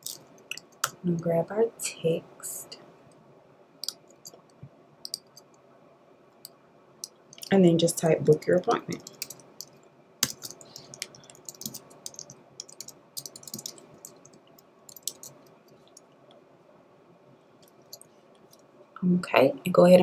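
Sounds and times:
computer keyboard typing: 0:05.0 - 0:05.4, 0:08.2 - 0:15.5.

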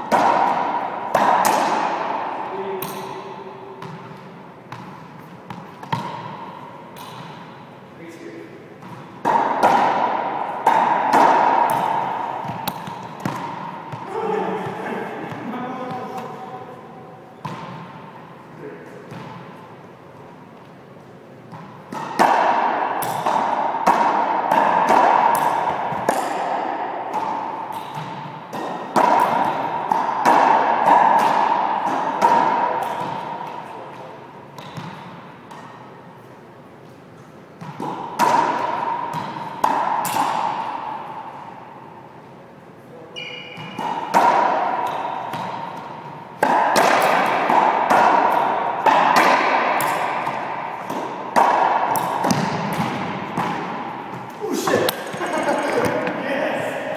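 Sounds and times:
racquetball ball hits echoing: 0:00.0 - 0:18.3, 0:19.0 - 0:19.8, 0:21.4 - 0:36.1, 0:37.5 - 0:42.1, 0:43.2 - 0:56.9
high squeak: 0:43.2 - 0:43.7.

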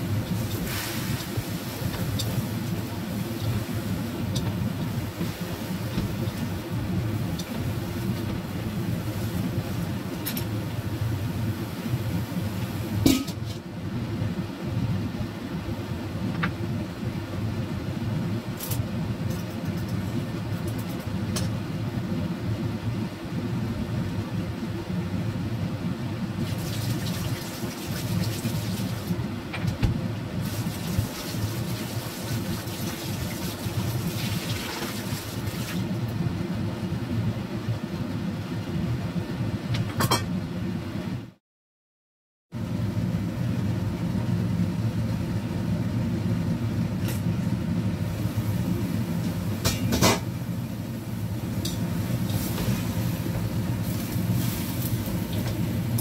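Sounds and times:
cabbage sizzling in a wok: 0:00.0 - 0:04.3, 0:48.0 - 0:56.0
low gas flame rumble: 0:00.0 - 0:41.4, 0:42.6 - 0:56.0.

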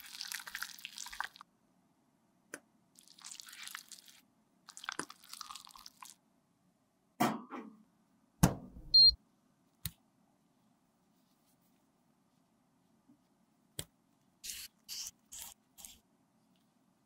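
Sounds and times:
short high beep: 0:08.9 - 0:09.2.

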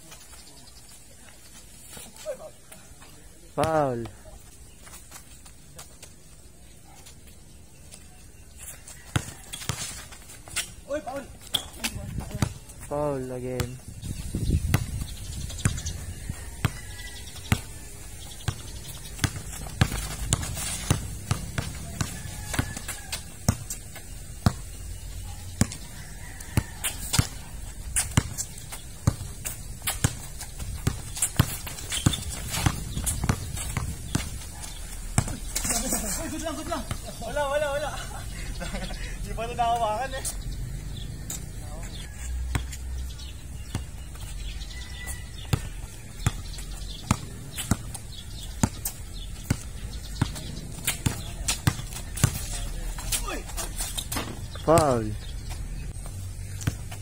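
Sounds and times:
sneaker footsteps: 0:00.0 - 0:37.6, 0:39.5 - 0:57.0
basketball bouncing on concrete: 0:08.9 - 0:12.8, 0:13.6 - 0:37.8, 0:39.5 - 0:57.0.

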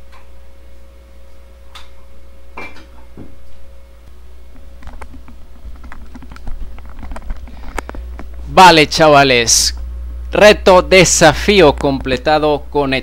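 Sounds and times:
clicks and knocks of handling: 0:04.5 - 0:08.4.

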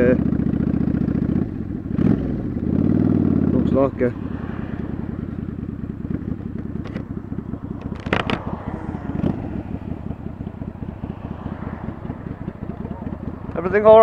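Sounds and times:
motorcycle engine putter: 0:04.2 - 0:14.0
wind noise on microphone: 0:05.9 - 0:14.0.

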